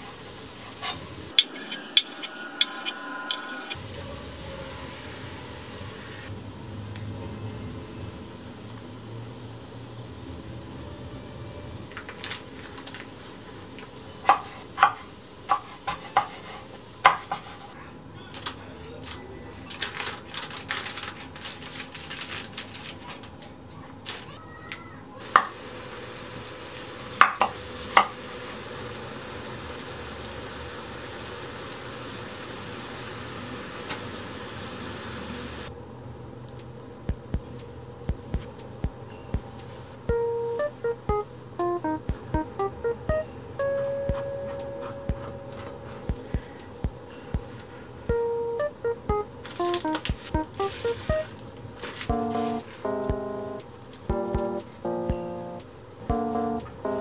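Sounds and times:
crackly handling noise: 18.3 - 24.3.

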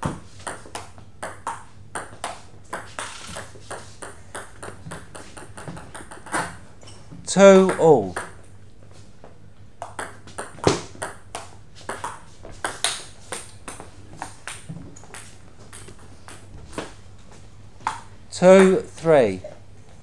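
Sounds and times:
table tennis ball clicking: 1.2 - 6.4.

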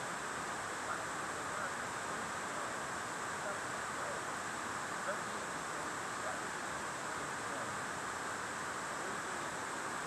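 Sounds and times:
faint indistinct sounds: 0.0 - 10.0
room noise hiss: 0.0 - 10.0.

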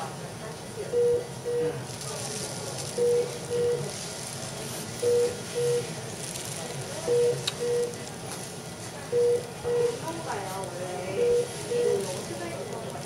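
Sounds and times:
monitor beeping: 0.9 - 1.8, 2.9 - 3.9, 5.0 - 6.0, 7.0 - 8.0, 9.1 - 10.0, 11.2 - 12.2.

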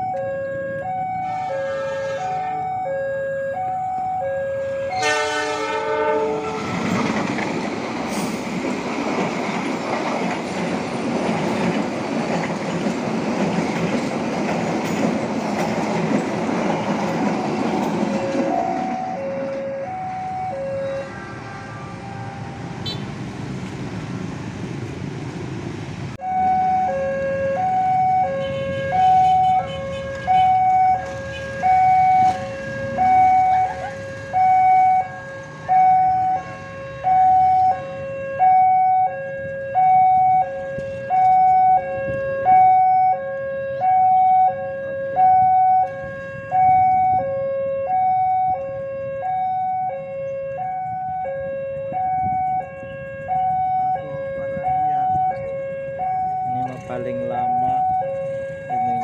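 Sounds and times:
level crossing two-tone alarm: 0.0 - 5.4, 18.1 - 22.8, 26.2 - 29.7, 30.3 - 59.0
road traffic rumble: 0.0 - 59.0
motorcycles passing: 16.0 - 38.0.

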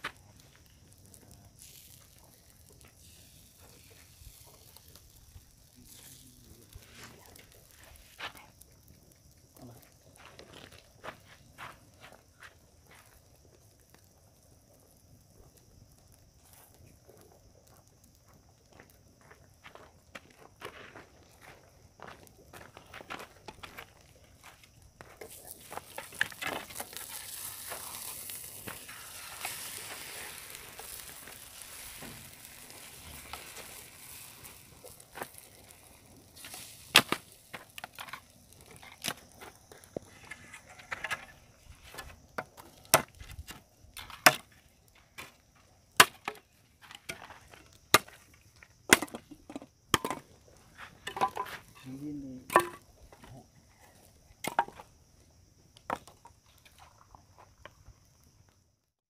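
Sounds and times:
soft hiss: 0.0 - 48.8
campfire crackling: 0.0 - 58.9.

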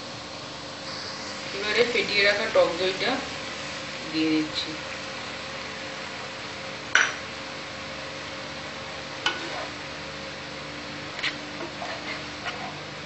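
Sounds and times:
steady low hiss: 0.0 - 7.6
spatula stirring in a frying pan: 9.1 - 9.8, 11.1 - 13.0.

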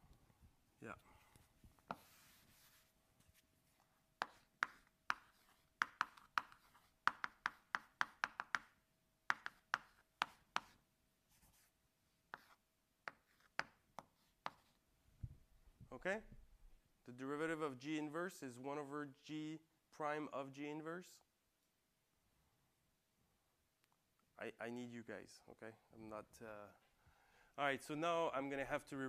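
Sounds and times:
chalk tapping and scratching: 1.4 - 14.8.

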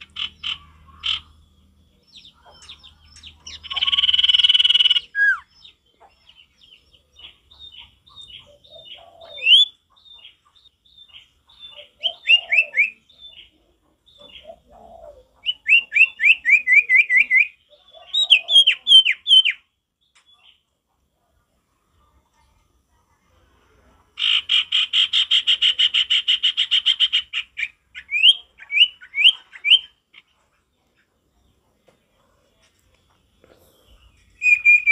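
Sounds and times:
bird singing whistles: 3.8 - 5.5, 9.4 - 9.7, 18.3 - 19.6, 27.6 - 29.9, 34.4 - 34.9
faint lower bird chirps: 32.8 - 34.9.

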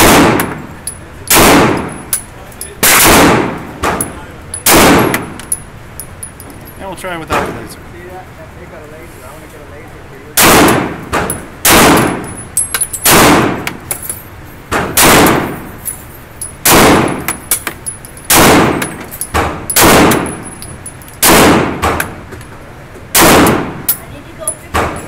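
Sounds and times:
pistol shots echoing: 0.0 - 0.7, 1.3 - 2.0, 2.8 - 5.4, 10.4 - 12.3, 13.0 - 13.8, 14.7 - 15.7, 16.6 - 17.7, 18.3 - 20.5, 21.2 - 22.2, 23.1 - 23.9
faint sharp cracks and clinks: 0.4 - 3.0, 3.8 - 7.4, 11.2 - 14.4, 15.5 - 21.3.

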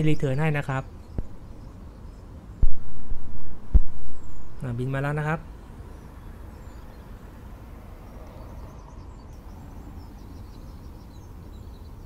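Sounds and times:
small birds chirping: 0.0 - 12.0
low rumble: 2.6 - 4.6.

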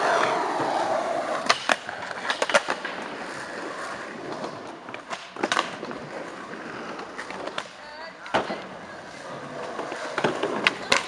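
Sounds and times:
skateboard clacks: 0.0 - 11.0
skateboard wheels rolling on concrete: 0.0 - 11.0.

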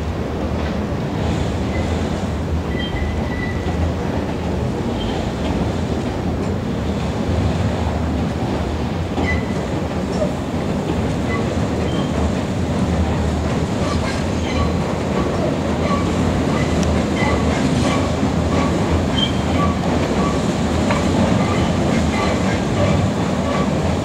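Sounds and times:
train rolling rumble on bridge: 0.0 - 24.0
faint high wheel squeals: 2.7 - 3.8, 9.2 - 9.6, 11.3 - 12.2, 15.8 - 20.5.

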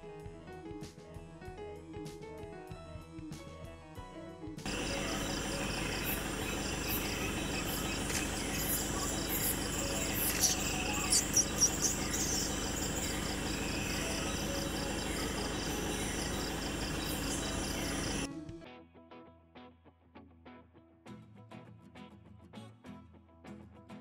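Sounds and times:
crickets chirring: 4.7 - 18.3.

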